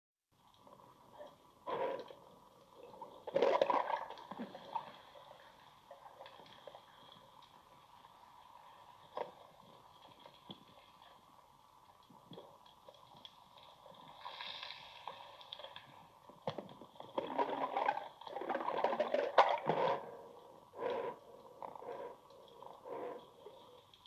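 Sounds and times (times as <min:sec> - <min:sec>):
faint underwater clicking: 0:06.0 - 0:17.2.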